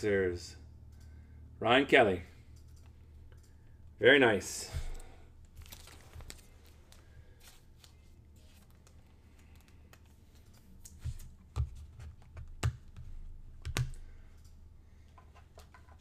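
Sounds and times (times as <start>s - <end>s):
steady low hum: 0.0s - 16.0s
plastic sleeve rustling: 5.4s - 10.1s.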